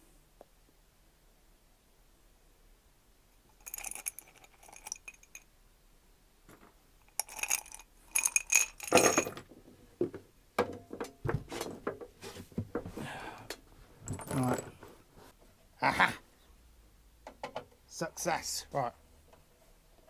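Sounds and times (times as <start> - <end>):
metal bolts clinking: 3.6 - 5.4, 7.0 - 9.4
parts knocking and clattering: 6.5 - 13.0, 14.0 - 15.0, 17.2 - 17.8.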